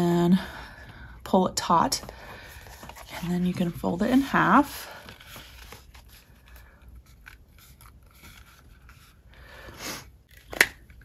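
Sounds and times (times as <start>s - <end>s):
notepad cover handling: 2.3s - 9.2s.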